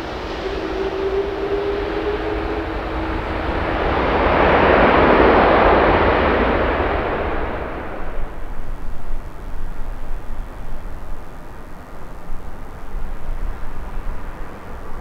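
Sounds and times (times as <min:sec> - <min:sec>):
jet airliner passing: 0:00.0 - 0:15.0.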